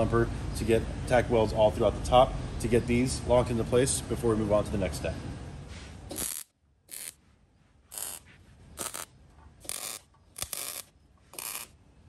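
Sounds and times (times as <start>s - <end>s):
welder crackling bursts: 6.1s - 7.2s, 7.9s - 8.2s, 8.8s - 11.8s.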